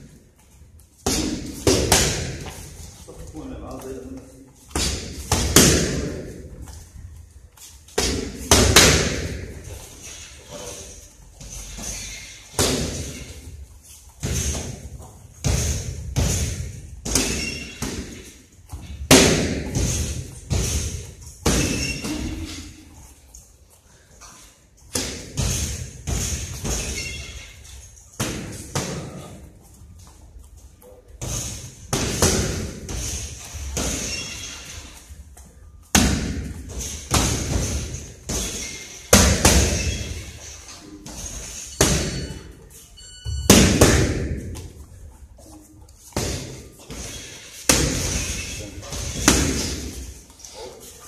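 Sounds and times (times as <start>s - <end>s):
punches thudding on striking pads: 4.7s - 6.3s, 8.0s - 9.5s, 19.1s - 22.3s, 31.2s - 34.1s, 35.9s - 39.9s, 43.4s - 44.6s, 46.1s - 47.1s, 47.7s - 50.0s.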